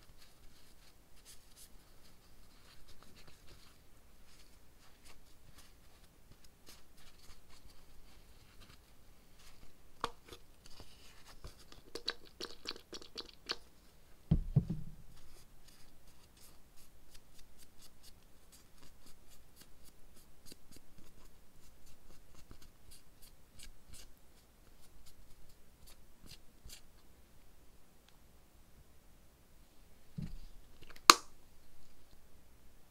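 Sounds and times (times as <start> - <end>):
wipe rubbing over nails: 0.0 - 9.7
dull thump: 14.3 - 15.1.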